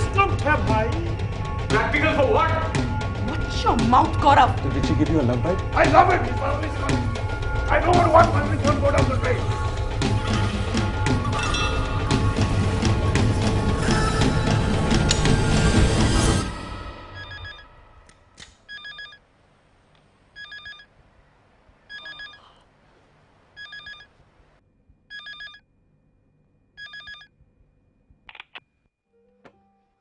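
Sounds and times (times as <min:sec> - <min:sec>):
telephone ringing: 0:17.2 - 0:17.6, 0:18.7 - 0:19.2, 0:20.4 - 0:20.9, 0:21.9 - 0:22.5, 0:23.6 - 0:24.1, 0:25.1 - 0:25.6, 0:26.8 - 0:27.3.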